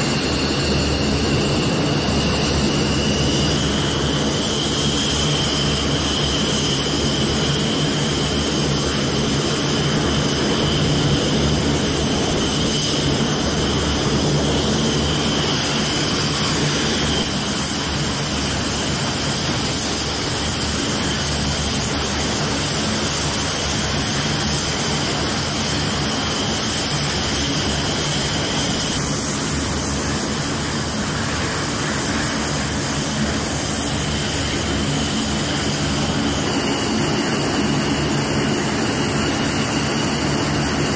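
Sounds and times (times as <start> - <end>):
high-pitched jet whine: 0.0 - 40.9
jet engines running: 0.0 - 40.9.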